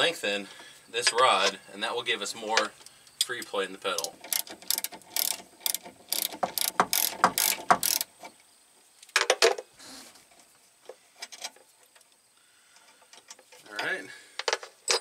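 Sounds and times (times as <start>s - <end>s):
ratchet wrench clicking: 4.0s - 8.1s.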